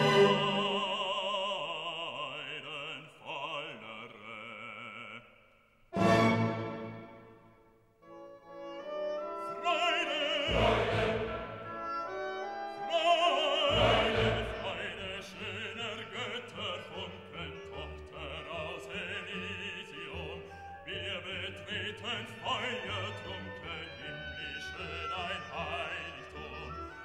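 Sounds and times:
orchestra playing: 0.0s - 1.0s, 6.0s - 7.5s, 8.1s - 20.3s
operatic singing voice: 0.0s - 6.6s, 9.4s - 11.9s, 12.7s - 27.0s.

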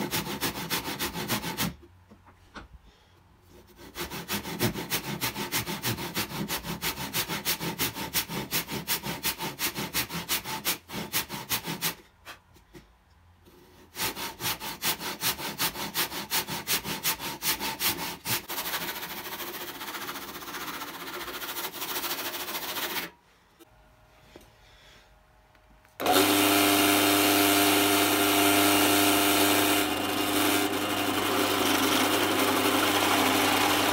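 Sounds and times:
handsaw cutting wood: 0.0s - 1.8s, 3.5s - 12.1s, 13.5s - 23.1s, 26.0s - 33.9s
larger saw rasping: 3.6s - 12.0s, 13.6s - 23.1s, 26.0s - 33.9s.

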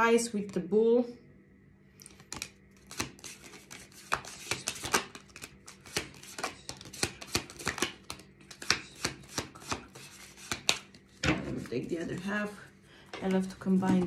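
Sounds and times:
cards being shuffled: 2.0s - 12.6s.

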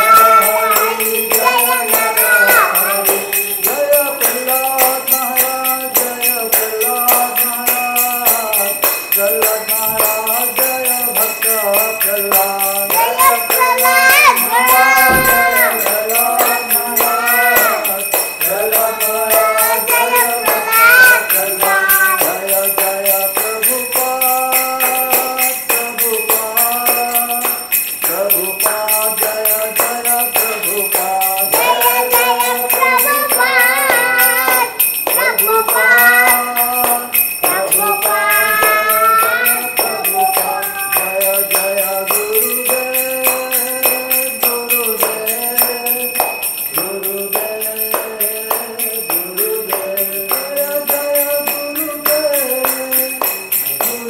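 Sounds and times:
jingling metal percussion: 0.0s - 54.0s.

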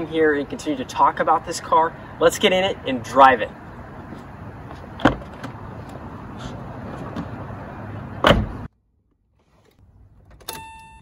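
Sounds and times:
car door opening clicks: 8.2s - 8.7s
car door shutting thud: 8.2s - 8.7s.

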